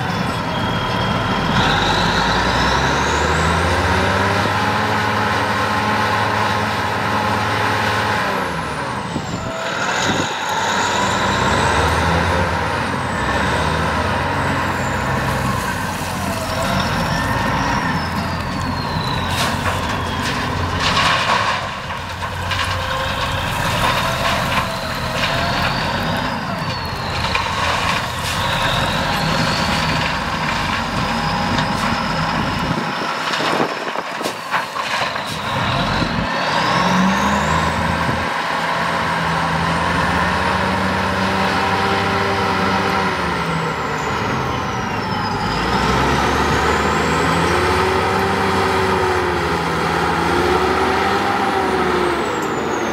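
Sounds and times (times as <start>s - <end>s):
diesel engine running: 0.0s - 52.9s.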